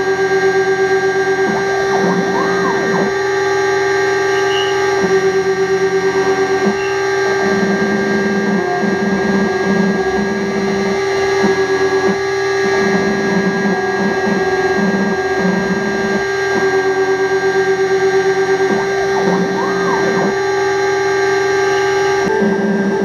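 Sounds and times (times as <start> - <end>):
spindle whine: 0.0 - 23.0
stepper motor tones: 0.0 - 23.0.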